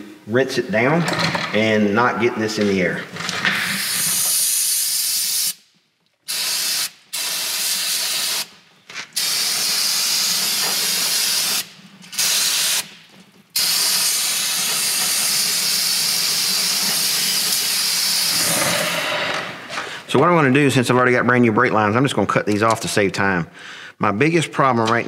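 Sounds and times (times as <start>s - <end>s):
liquid cleaner spray hissing: 6.3s - 8.5s, 9.2s - 12.8s, 13.6s - 18.6s.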